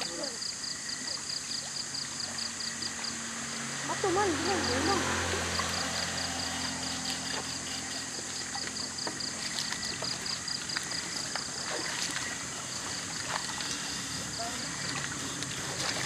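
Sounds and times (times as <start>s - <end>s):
stream water running over rocks: 0.0s - 16.0s
small clicks and splashes: 4.8s - 16.0s.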